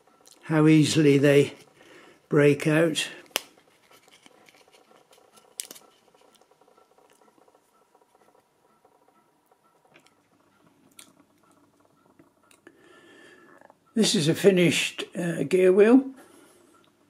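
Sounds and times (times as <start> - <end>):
plastic sheet rubbing and clicking: 3.3 - 9.0.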